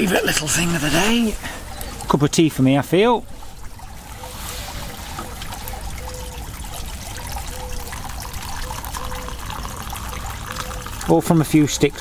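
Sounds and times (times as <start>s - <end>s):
water pouring into metal mug: 5.0s - 12.0s.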